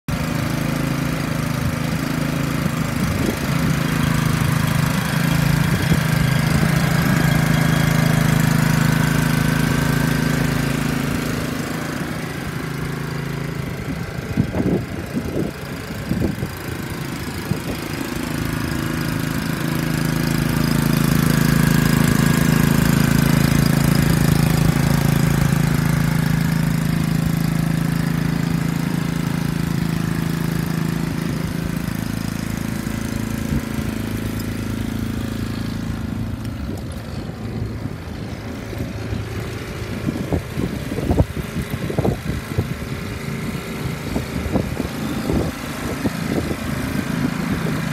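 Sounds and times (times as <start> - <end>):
water pump engine running: 0.1 - 47.9.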